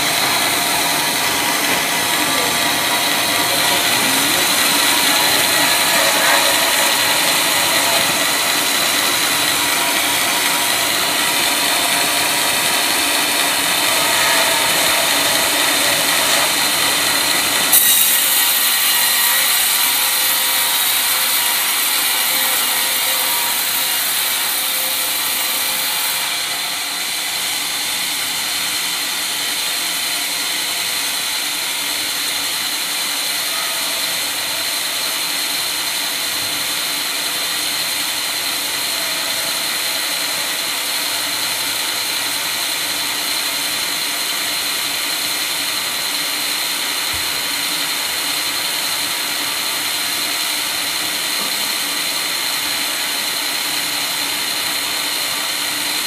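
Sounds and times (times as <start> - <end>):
band sawmill whirring: 0.0 - 56.0.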